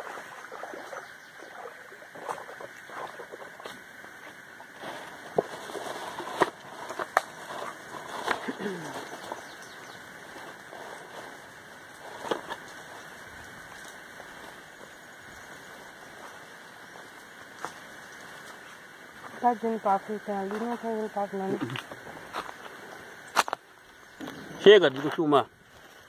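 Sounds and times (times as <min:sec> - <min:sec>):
footsteps splashing in shallow water: 0:00.0 - 0:14.8
steady background hiss: 0:00.0 - 0:26.0.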